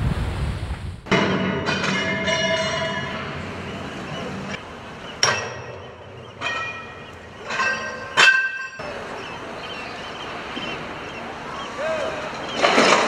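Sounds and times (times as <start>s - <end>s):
metal clang with ringing tail: 1.1s - 3.2s.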